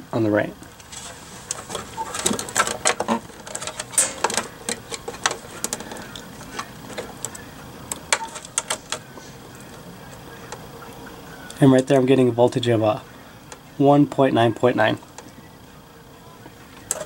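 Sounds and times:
wires and probes clicking and rattling: 0.7s - 10.7s, 16.7s - 17.0s.

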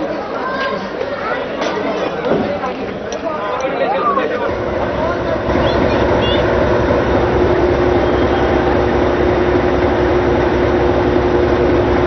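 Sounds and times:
steam locomotive running: 4.5s - 12.0s.

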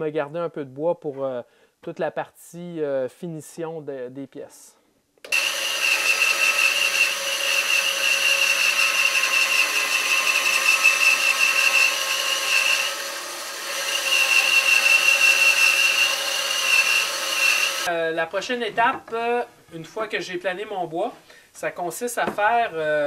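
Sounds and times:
band saw cutting wood: 5.3s - 17.9s.

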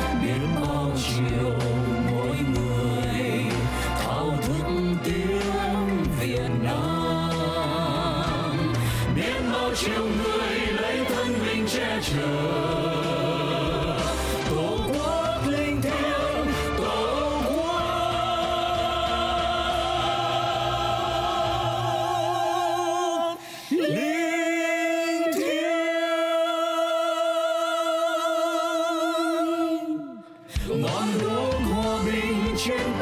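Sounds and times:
band accompaniment: 0.0s - 22.1s, 30.6s - 33.0s
voices singing in harmony: 0.0s - 33.0s.

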